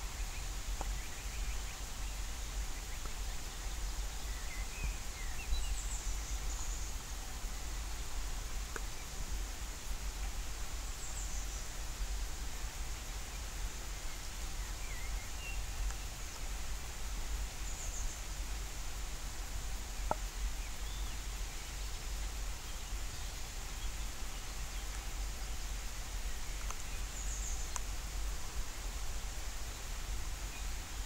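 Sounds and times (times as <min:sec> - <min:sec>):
faint bird chirps: 0:00.0 - 0:08.1, 0:12.9 - 0:16.7
light rain hissing: 0:00.0 - 0:31.0.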